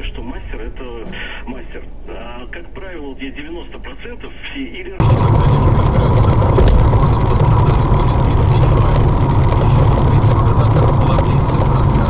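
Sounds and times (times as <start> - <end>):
faint steady whine: 0.0 - 12.0
engine and tyres on wet road: 5.0 - 12.0.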